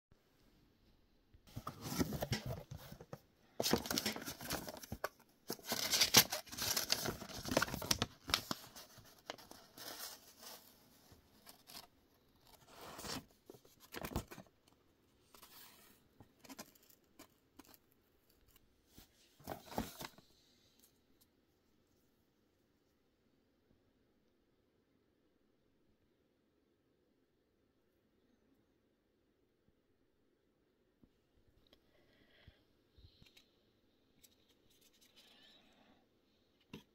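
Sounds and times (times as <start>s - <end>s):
paper rustling and tearing: 3.6s - 10.7s.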